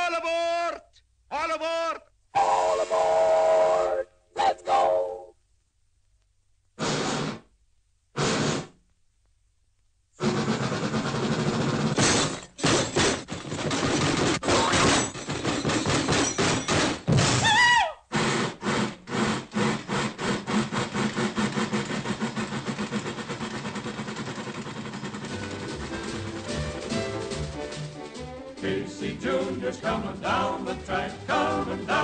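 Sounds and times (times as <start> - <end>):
train whistle: 2.4 - 5.3
steam hiss: 6.8 - 7.4, 8.2 - 8.8, 18.1 - 22.8
steam locomotive chugging: 10.2 - 12.0, 18.1 - 32.0.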